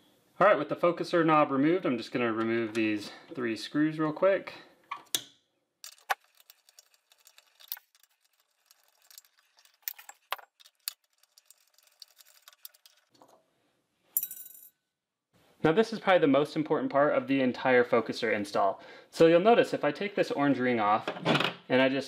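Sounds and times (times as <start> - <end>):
bright metal clink: 14.2 - 14.7.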